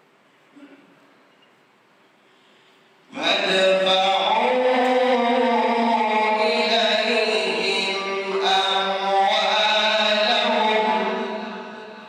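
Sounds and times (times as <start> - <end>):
man chanting: 3.1 - 12.0.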